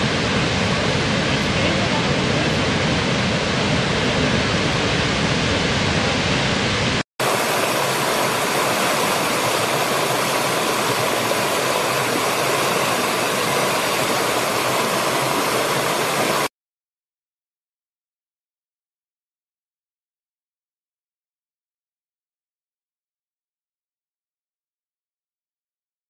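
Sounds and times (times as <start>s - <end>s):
rocky stream rushing: 7.2s - 16.5s
waterfall pouring: 7.2s - 16.5s.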